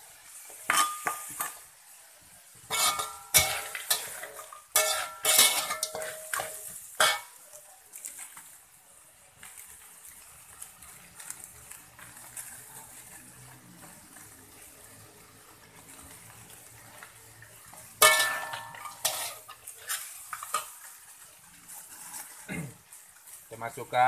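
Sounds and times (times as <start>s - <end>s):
metal spatula stirring in wok: 0.0s - 8.6s, 9.6s - 24.0s
faint frying sizzle: 0.0s - 24.0s
spatula clanging on wok: 0.6s - 1.6s, 2.7s - 7.5s, 18.0s - 20.9s.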